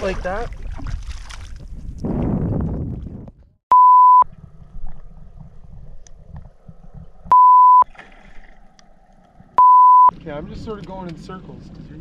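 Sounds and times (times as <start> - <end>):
water splashing and churning: 0.0 - 3.3, 4.3 - 9.6
loud flat bleep tones: 3.7 - 4.2, 7.3 - 7.8, 9.6 - 10.1.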